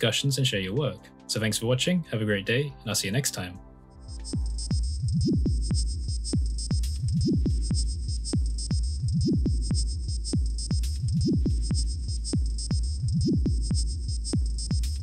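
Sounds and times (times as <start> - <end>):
electronic music with pulsing bass: 4.0 - 15.0.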